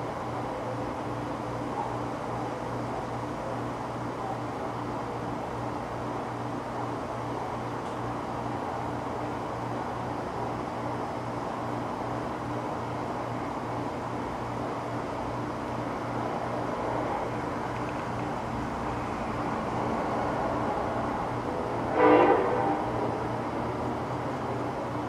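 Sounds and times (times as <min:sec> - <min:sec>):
steady background hum: 0:00.0 - 0:25.0
vehicle air horn blast: 0:21.9 - 0:23.0.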